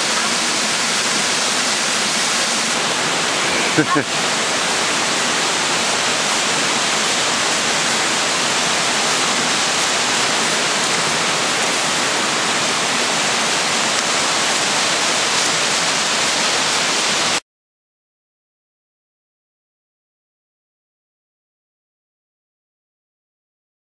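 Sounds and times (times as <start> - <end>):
waterfall rushing: 0.0 - 17.4.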